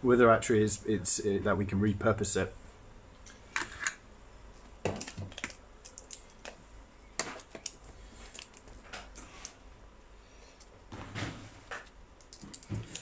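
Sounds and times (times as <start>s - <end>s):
light clicks and taps of parts: 11.7s - 13.0s.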